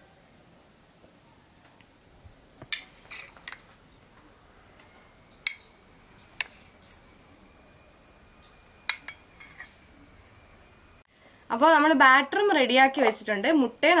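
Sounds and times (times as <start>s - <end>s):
bird chirps: 3.9s - 10.9s.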